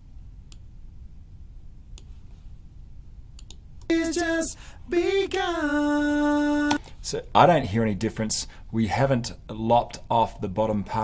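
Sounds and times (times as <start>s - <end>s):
faint mouse clicks: 0.5s - 0.7s, 1.9s - 2.2s, 3.4s - 3.9s
harmony backing vocals singing: 3.9s - 6.8s.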